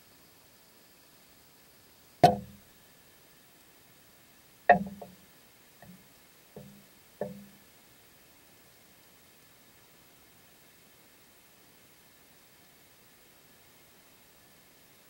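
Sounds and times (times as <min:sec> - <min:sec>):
knocks on underwater camera rig: 0:02.2 - 0:02.6, 0:04.7 - 0:05.2, 0:06.6 - 0:07.5.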